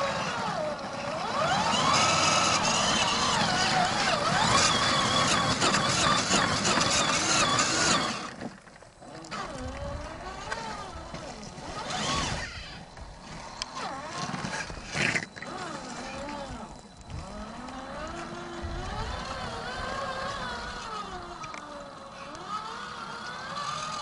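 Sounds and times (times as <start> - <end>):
electric motor whining: 0.0 - 24.0
wind noise on microphone: 9.3 - 21.5.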